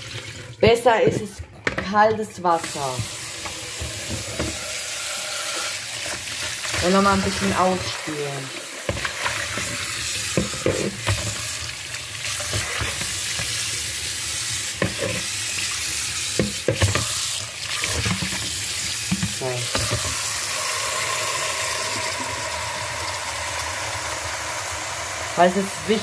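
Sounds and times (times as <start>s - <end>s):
tap running into sink: 2.6s - 4.9s, 8.8s - 11.6s, 16.3s - 24.4s
water pouring into bowl: 2.6s - 26.0s.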